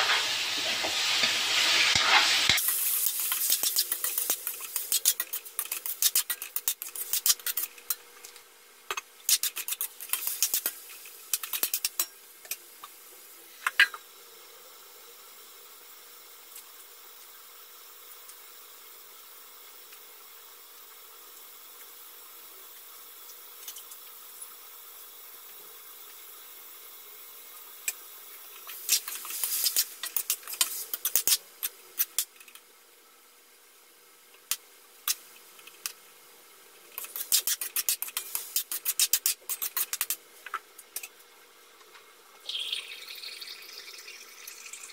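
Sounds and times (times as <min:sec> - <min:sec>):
metal spatula scraping wok: 0:00.0 - 0:08.0, 0:37.0 - 0:40.2
soft hiss of cooking pan: 0:00.0 - 0:44.9.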